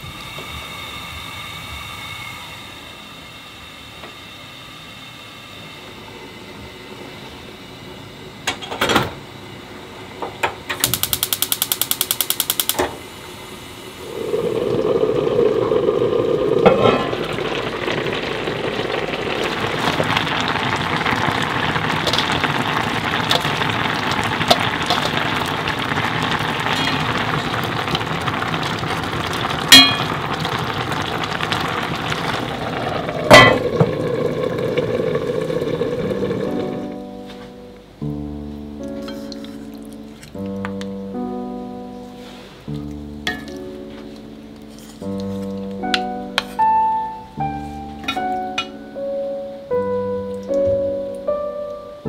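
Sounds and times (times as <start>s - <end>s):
soup bubbling in a pot: 13.8s - 37.0s.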